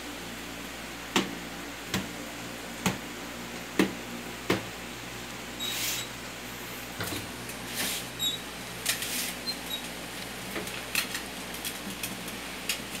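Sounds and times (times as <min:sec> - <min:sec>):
steady low hum: 0:00.0 - 0:13.0
scratchy rustles: 0:08.9 - 0:09.4.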